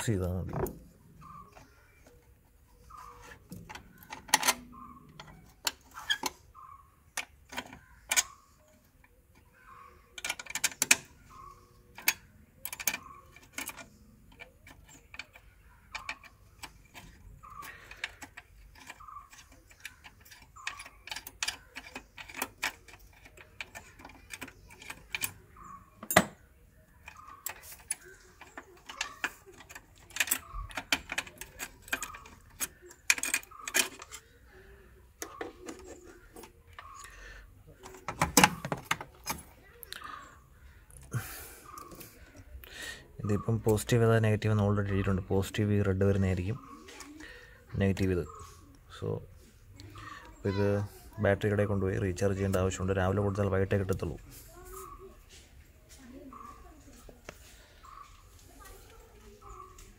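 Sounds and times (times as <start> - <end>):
clamp and bolt rattling: 2.9 - 6.4, 10.2 - 26.4, 27.0 - 34.4, 37.8 - 39.6
spanner clicking on metal nut: 10.2 - 26.4, 27.0 - 34.2.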